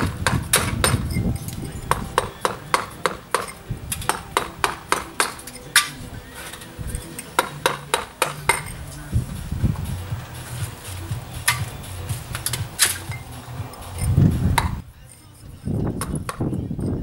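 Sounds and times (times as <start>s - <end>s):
mallet striking chisel: 0.0s - 1.2s, 1.9s - 6.0s, 7.4s - 8.8s, 14.6s - 14.8s, 16.0s - 16.6s.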